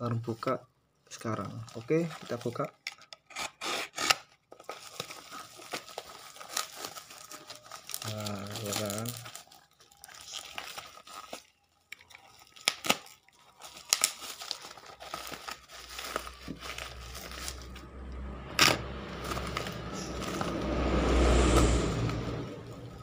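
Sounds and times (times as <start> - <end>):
plastic wrapping crinkling and tearing: 1.1 - 21.0
box rustling: 13.6 - 20.6.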